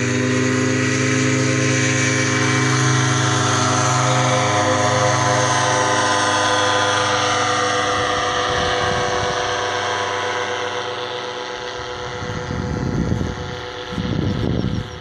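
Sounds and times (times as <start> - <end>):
paraglider engine droning overhead: 0.0 - 15.0
low rumbling gusts: 1.2 - 10.0, 11.8 - 15.0.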